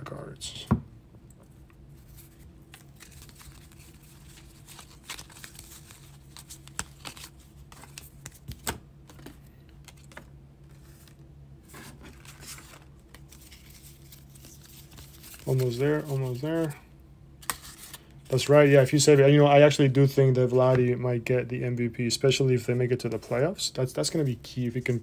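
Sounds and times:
paper rustling: 2.0s - 16.8s.

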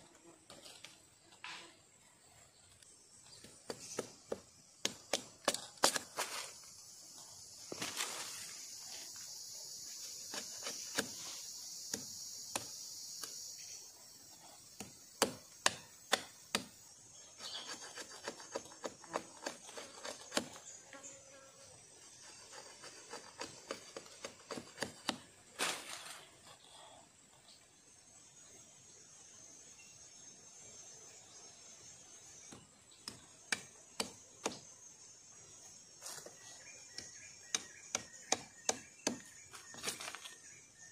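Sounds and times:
machete cutting wooden stick: 3.4s - 6.6s, 10.3s - 13.4s, 14.7s - 16.8s, 17.5s - 20.7s, 22.5s - 26.3s, 37.0s - 40.2s.

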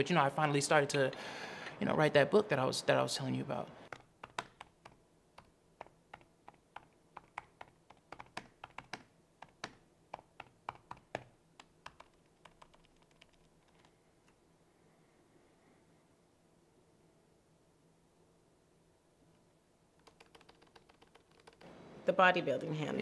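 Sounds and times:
laptop keyboard typing: 3.9s - 14.4s, 20.0s - 21.7s.

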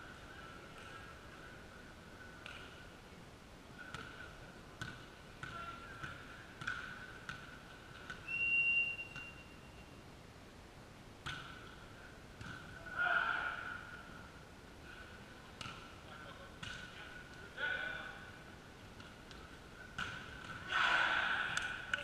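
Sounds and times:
ball bouncing and struck: 4.8s - 8.2s, 11.2s - 11.8s, 12.4s - 12.7s, 20.0s - 20.6s
referee's whistle: 8.2s - 9.9s.

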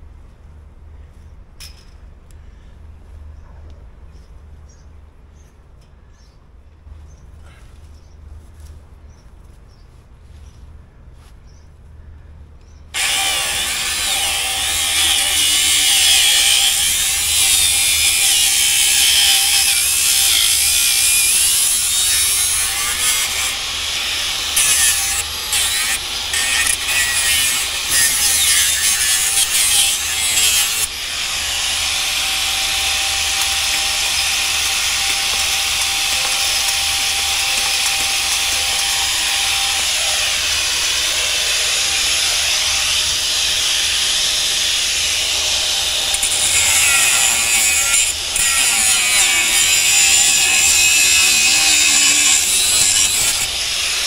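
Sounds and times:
angle grinder cutting steel: 13.0s - 54.0s.

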